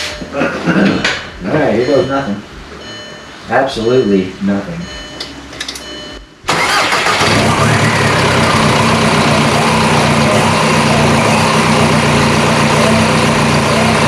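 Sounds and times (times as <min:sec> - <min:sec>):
diesel engine starting and idling: 0:05.8 - 0:14.0.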